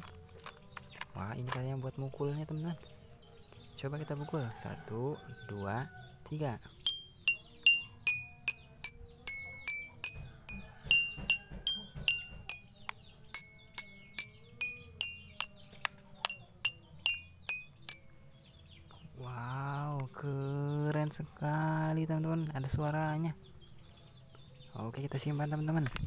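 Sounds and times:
toy xylophone notes: 0:06.8 - 0:18.1.

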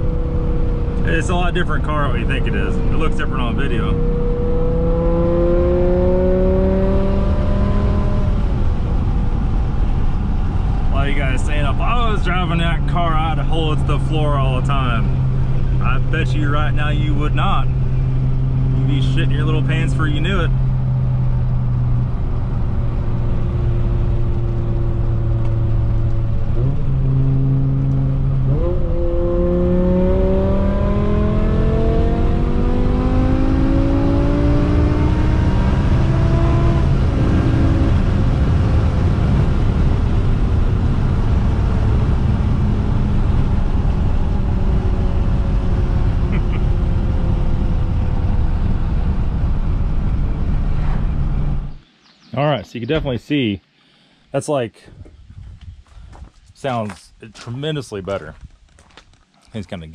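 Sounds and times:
car engine revving: 0:00.0 - 0:51.8.

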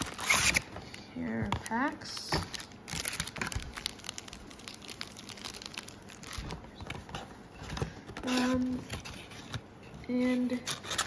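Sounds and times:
foil packs and cardboard crinkling: 0:00.0 - 0:09.4.

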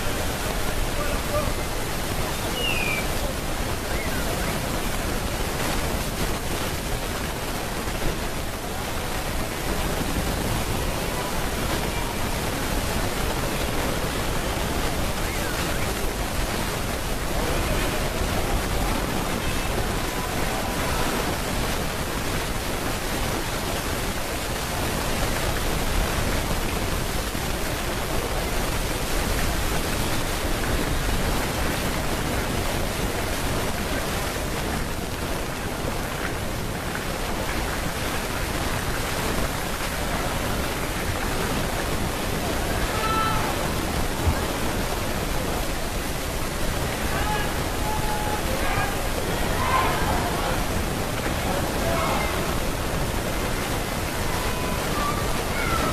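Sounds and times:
steady rushing noise: 0:00.0 - 0:55.9.

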